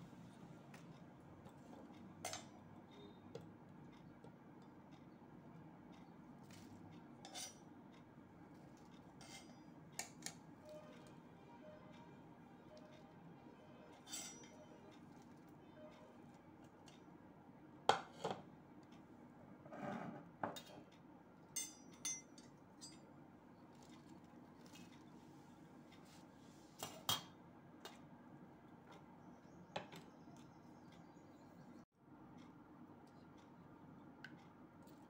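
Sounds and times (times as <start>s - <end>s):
utensils clinking on steel plate: 7.2s - 7.7s, 9.0s - 10.4s, 14.0s - 15.1s, 21.6s - 23.1s, 26.8s - 27.4s.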